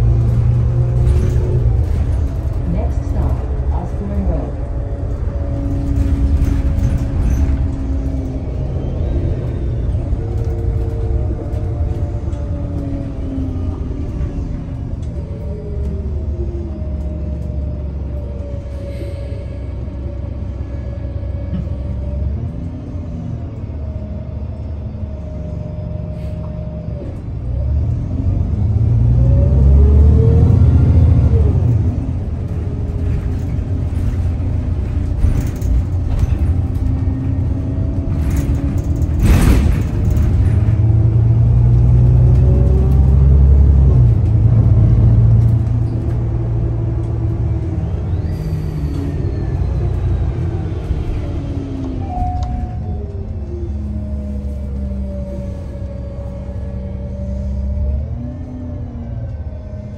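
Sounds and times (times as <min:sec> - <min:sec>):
bus engine rumble: 0:00.0 - 0:59.9.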